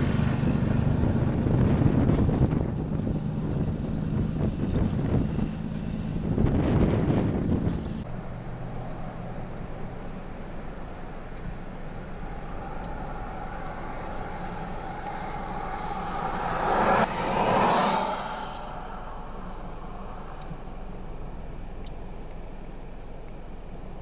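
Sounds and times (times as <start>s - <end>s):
pickup truck passing: 0.0s - 22.9s
traffic rumble: 0.0s - 24.0s.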